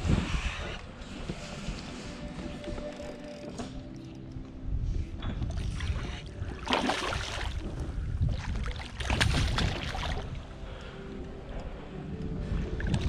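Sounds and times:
fish thrashing and splashing: 6.6s - 10.4s.

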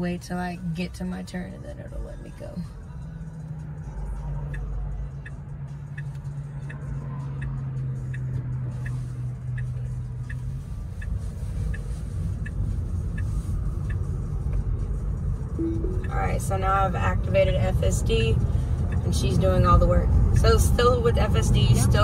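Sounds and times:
cabin road noise: 0.0s - 22.0s
turn signal ticking: 0.0s - 22.0s
low steady hum: 10.4s - 19.2s.

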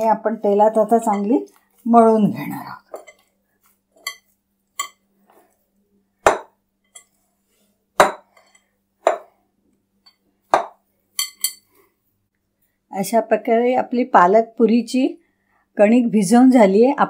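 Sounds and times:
dough knocking against glass bowl: 6.2s - 6.6s, 8.0s - 8.4s, 9.0s - 9.3s, 10.5s - 11.3s.

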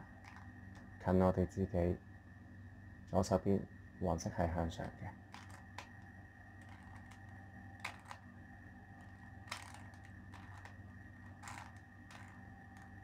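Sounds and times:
faint steady hum: 0.0s - 13.0s
puzzle cube turning clicks: 0.2s - 0.9s, 5.3s - 8.3s, 9.0s - 13.0s.

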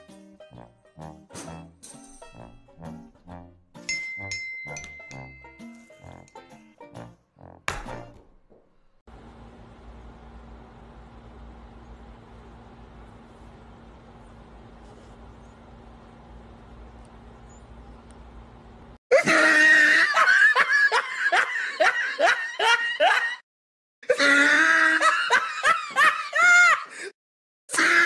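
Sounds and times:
high-pitched laughter: 19.1s - 23.4s.

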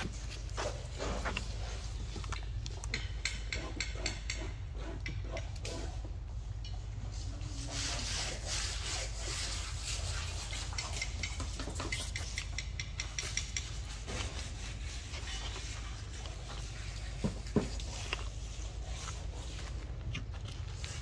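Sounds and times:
monkey licking food off tiled floor: 14.8s - 21.0s.

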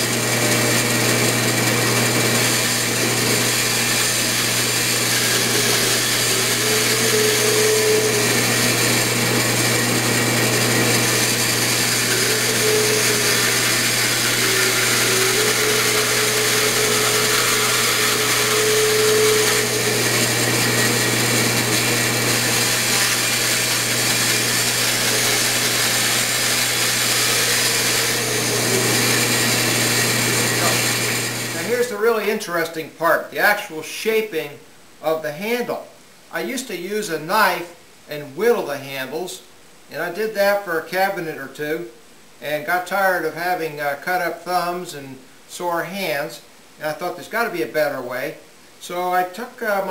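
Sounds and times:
bandsaw cutting wood: 0.0s - 32.0s.

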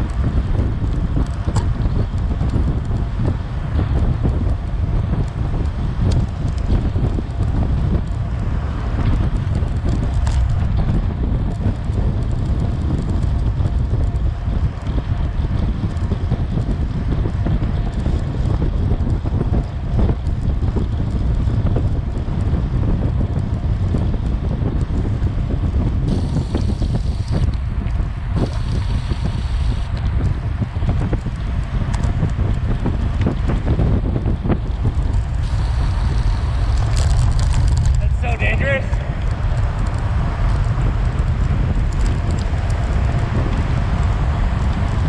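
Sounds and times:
wind buffeting microphone: 0.0s - 45.0s.

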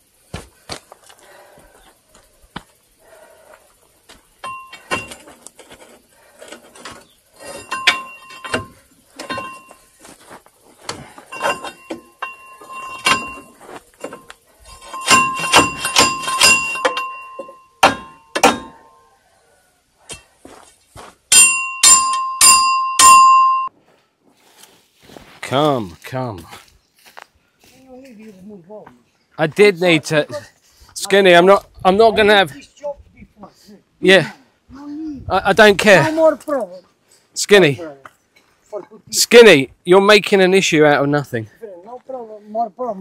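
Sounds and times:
hammer striking steel: 14.9s - 18.8s, 21.3s - 23.7s.

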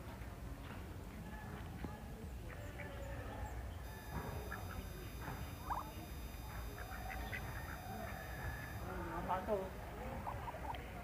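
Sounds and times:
guineafowl calling: 3.8s - 9.2s, 10.1s - 10.9s.

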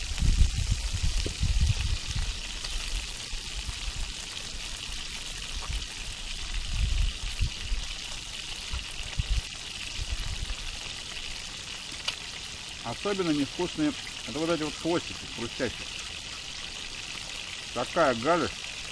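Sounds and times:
wind buffeting microphone: 0.0s - 3.1s, 5.6s - 7.9s, 8.8s - 10.6s
fish sizzling over fire: 0.0s - 18.9s.

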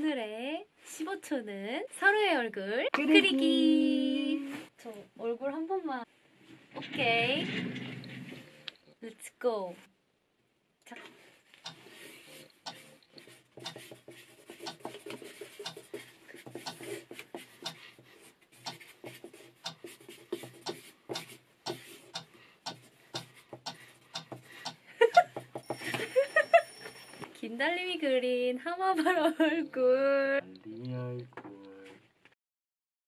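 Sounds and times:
pen scratching on paper: 11.8s - 24.5s.

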